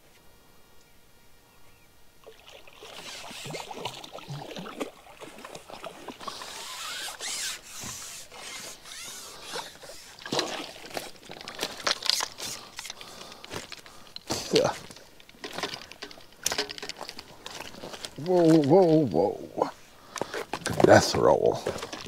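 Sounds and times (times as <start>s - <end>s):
fish splashing: 2.2s - 8.4s, 9.3s - 13.4s
sharp clicks and knocks: 14.8s - 18.7s.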